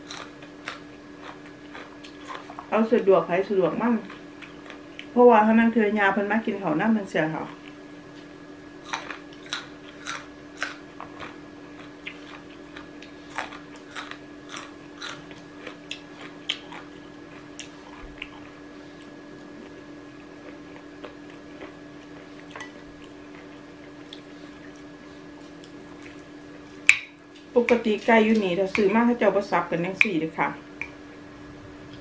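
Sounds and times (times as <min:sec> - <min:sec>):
person chewing crunchy food: 0:00.0 - 0:02.7, 0:04.0 - 0:05.1, 0:07.5 - 0:27.5
low steady hum: 0:00.0 - 0:32.0.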